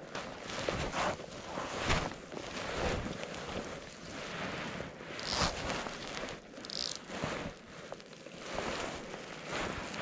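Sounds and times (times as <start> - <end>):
wind and water rustling: 0.0 - 10.0
fly line rasping through rod guides: 5.2 - 7.1.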